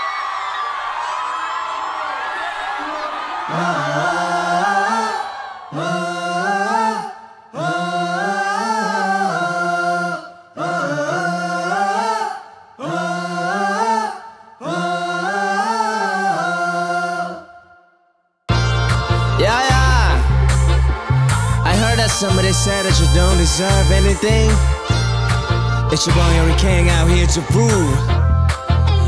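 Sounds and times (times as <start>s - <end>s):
man singing unaccompanied chant: 19.4s - 20.3s, 21.6s - 24.7s, 25.9s - 28.1s.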